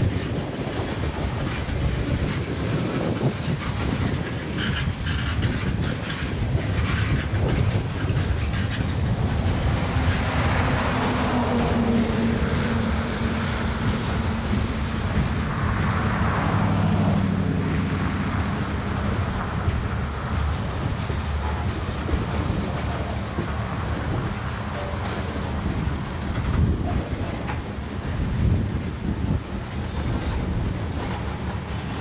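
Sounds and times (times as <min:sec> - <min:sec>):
rail clicks: 0:00.0 - 0:32.0
steel wheels rolling on rail: 0:00.0 - 0:32.0.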